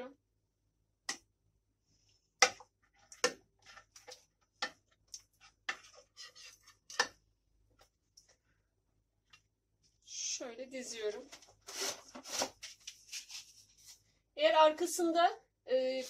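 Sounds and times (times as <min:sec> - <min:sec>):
soft taps and scrapes: 0:02.8 - 0:08.4.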